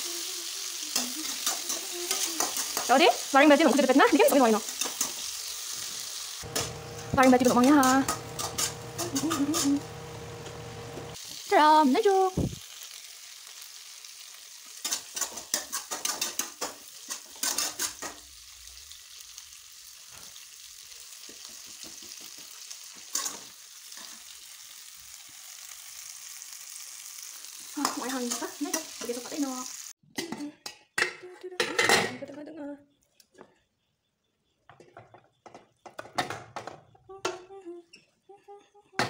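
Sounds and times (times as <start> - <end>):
sauce sizzling in a frying pan: 0.0 - 30.0
spatula scraping a pan: 4.6 - 9.8, 14.8 - 18.2.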